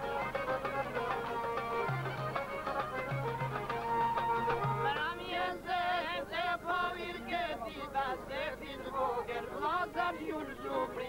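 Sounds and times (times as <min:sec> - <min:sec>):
plucked long-necked lute: 0:00.0 - 0:05.0
accordion: 0:00.0 - 0:11.0
men singing folk song: 0:04.4 - 0:11.0.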